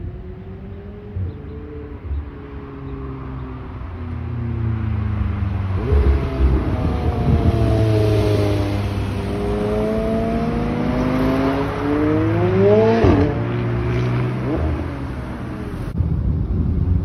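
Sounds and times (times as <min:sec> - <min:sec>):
sports car engine revving: 0:05.7 - 0:16.0.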